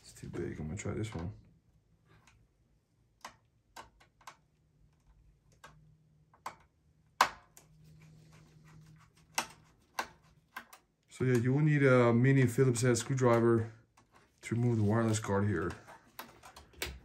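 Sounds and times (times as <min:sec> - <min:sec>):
screwdriver clicking and tapping: 0:03.2 - 0:07.7, 0:09.3 - 0:11.4.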